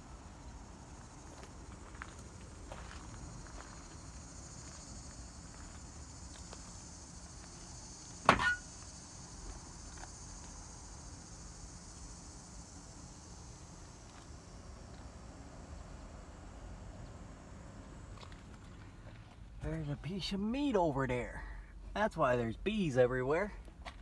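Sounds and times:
insects chirring: 0:00.0 - 0:24.0
sharp clunk: 0:08.2 - 0:08.7.

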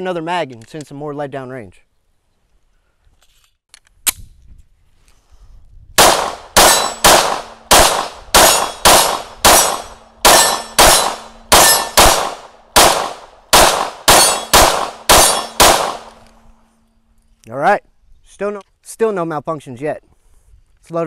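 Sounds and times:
rapid pistol shots: 0:06.0 - 0:16.2.

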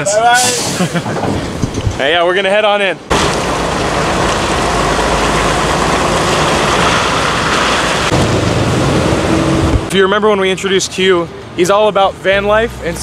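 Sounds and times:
tyre and road noise: 0:00.0 - 0:13.0
truck diesel engine: 0:03.0 - 0:11.6.

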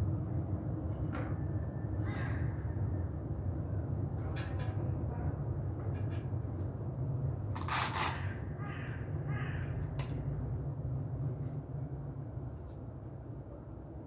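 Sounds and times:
steady low hum: 0:00.0 - 0:14.0
crow cawing: 0:02.0 - 0:02.8, 0:08.1 - 0:09.9.

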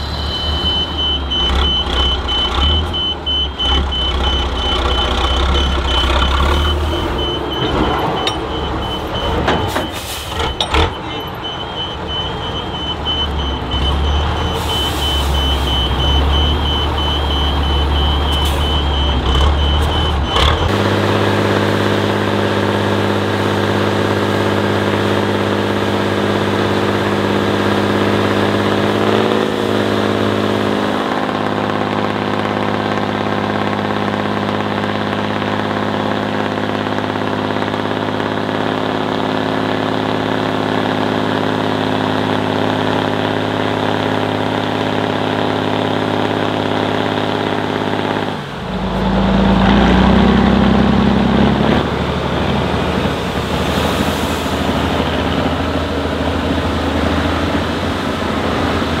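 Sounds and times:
reverse alarm beeping: 0:00.0 - 0:20.7
truck engine idling: 0:00.0 - 0:59.0
truck engine rumbling: 0:00.0 - 0:59.0.

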